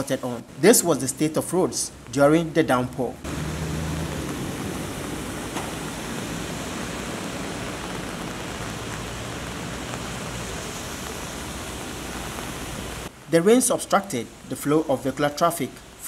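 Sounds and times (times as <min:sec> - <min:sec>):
heavy rain: 0:00.0 - 0:16.0
water on a flooded road: 0:00.0 - 0:16.0
low drone of vehicle engines: 0:03.1 - 0:13.1.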